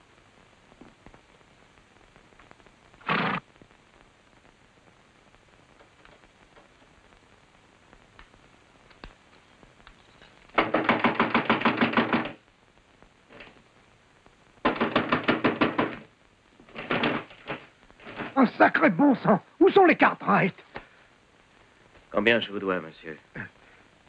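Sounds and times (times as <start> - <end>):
rapid knocking on wood: 10.6 - 12.4, 14.6 - 18.4.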